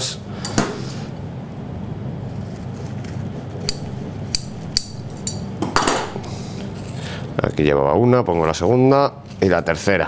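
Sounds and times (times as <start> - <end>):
low background hum: 0.0 - 10.0
scissors snipping: 3.0 - 5.4.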